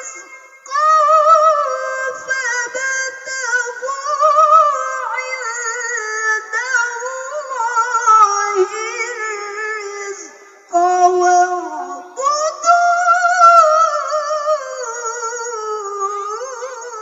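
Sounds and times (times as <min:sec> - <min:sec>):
woman reciting melodic chant: 0:00.0 - 0:17.0.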